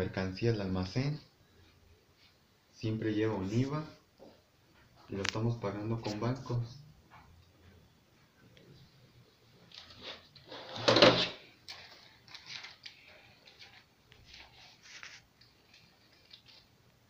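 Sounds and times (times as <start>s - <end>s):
notebook pages turning: 9.7s - 16.8s.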